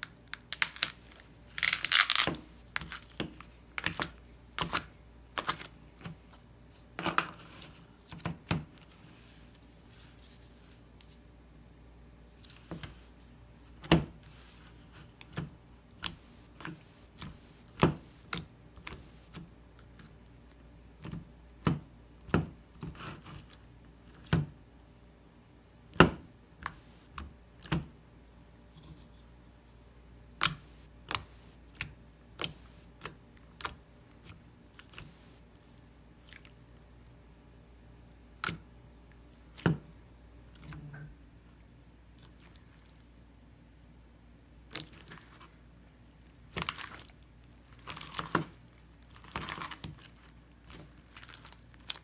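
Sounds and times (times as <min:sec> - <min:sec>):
slime squish: 0:30.4 - 0:37.2, 0:42.1 - 0:43.2, 0:44.6 - 0:45.6, 0:46.2 - 0:52.0.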